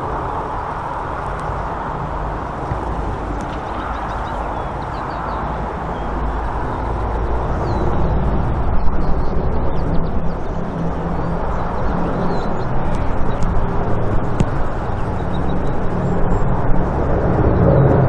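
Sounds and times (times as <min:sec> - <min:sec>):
propeller plane engines droning: 0:00.0 - 0:18.0.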